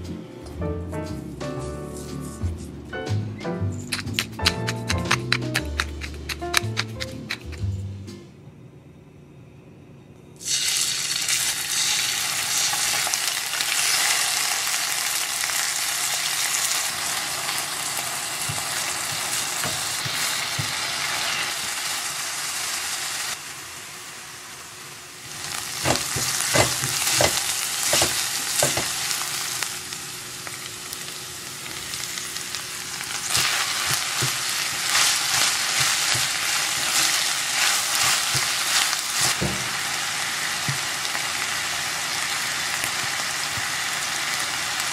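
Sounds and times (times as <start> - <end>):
chicken sizzling in oil: 10.4 - 44.9
utensil knocking on pan: 25.8 - 29.0.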